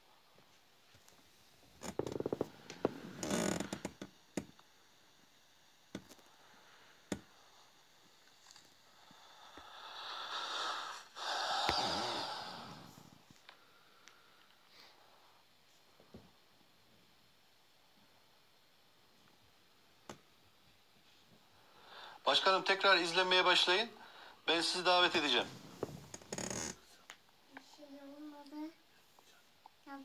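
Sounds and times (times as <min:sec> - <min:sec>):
breathy hiss: 0:01.8 - 0:05.1, 0:06.0 - 0:15.9, 0:21.0 - 0:29.4.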